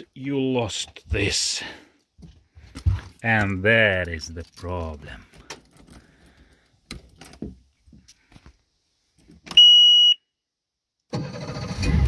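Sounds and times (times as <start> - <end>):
warning horn beep: 9.6 - 10.2.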